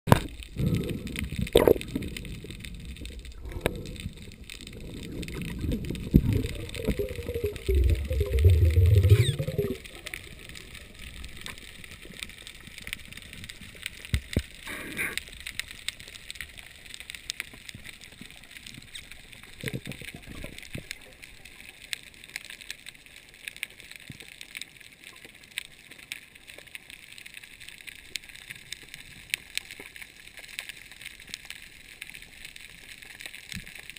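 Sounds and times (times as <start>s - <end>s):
water churning and gurgling: 0.1s - 22.3s
faint underwater hiss: 0.2s - 23.0s.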